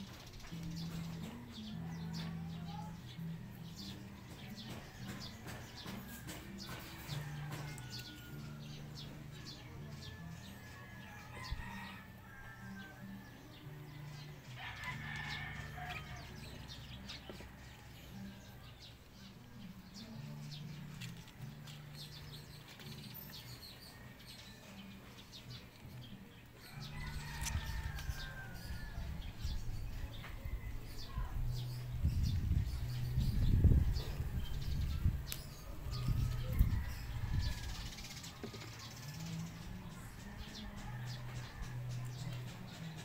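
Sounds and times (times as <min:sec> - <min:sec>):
rooster crowing: 0:10.8 - 0:13.2, 0:14.6 - 0:16.4, 0:26.6 - 0:29.2.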